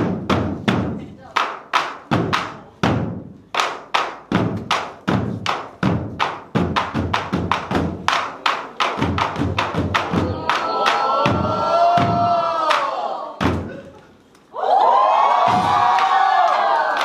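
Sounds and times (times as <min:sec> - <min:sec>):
barrel drums struck in unison: 0:00.0 - 0:12.5, 0:13.4 - 0:13.8.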